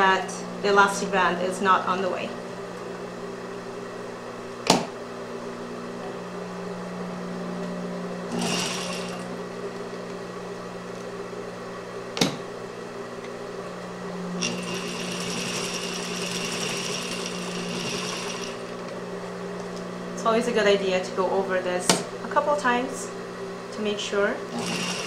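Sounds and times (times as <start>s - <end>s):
sewing machine stitching: 8.3s - 9.2s, 14.4s - 18.8s, 24.5s - 25.0s.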